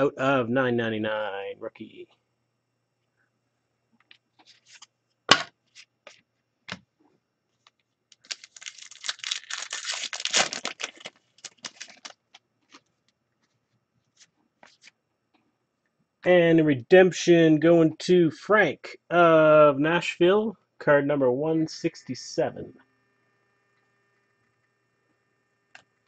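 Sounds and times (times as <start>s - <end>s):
cards and wrapper rustling: 8.1s - 12.9s
wrapper tearing and crinkling: 8.1s - 12.9s.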